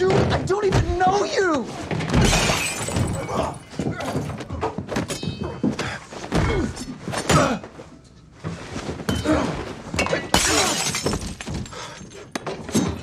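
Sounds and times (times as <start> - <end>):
heavy body blows and thuds: 1.8 - 7.6.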